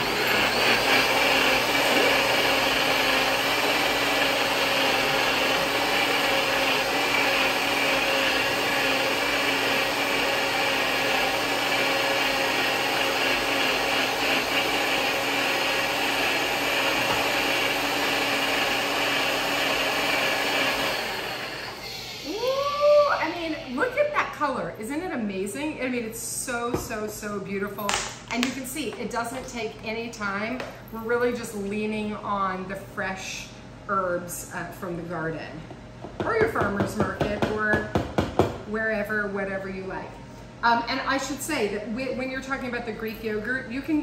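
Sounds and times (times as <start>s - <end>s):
blender motor running: 0.0s - 24.2s.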